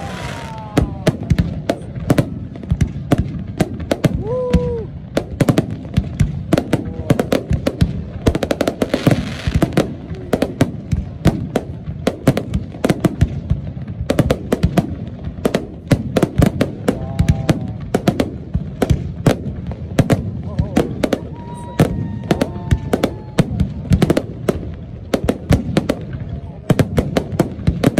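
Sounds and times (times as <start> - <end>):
fireworks bursting with bangs: 0.0 - 27.9
fireworks crackling hiss: 0.0 - 27.9.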